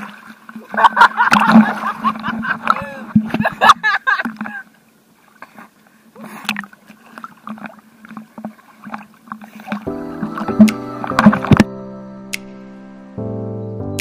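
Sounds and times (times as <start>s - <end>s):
water sloshing and splashing: 0.0s - 11.7s
music: 9.9s - 14.0s.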